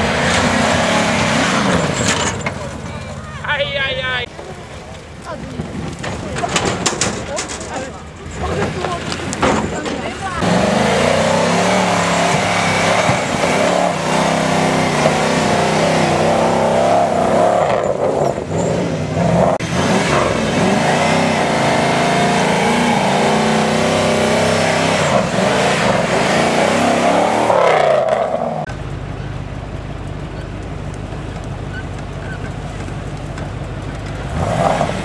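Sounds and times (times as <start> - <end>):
buggy engine revving: 0.0 - 35.0
engine low steady hum: 28.6 - 34.4.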